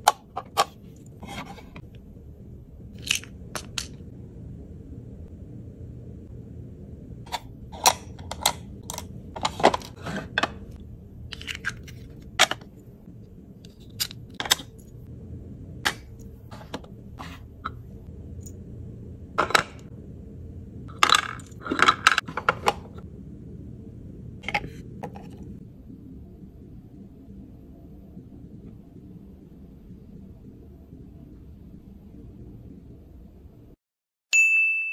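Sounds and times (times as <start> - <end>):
steady low hum: 0.0 - 33.8.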